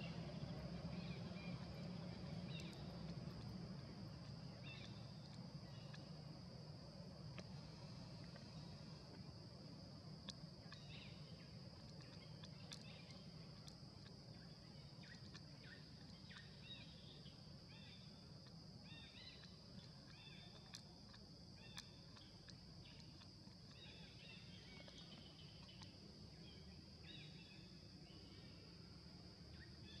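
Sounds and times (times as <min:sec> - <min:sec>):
bird chirping: 0:00.0 - 0:03.1, 0:04.4 - 0:06.0
faint clicks: 0:11.8 - 0:16.4, 0:19.2 - 0:26.0.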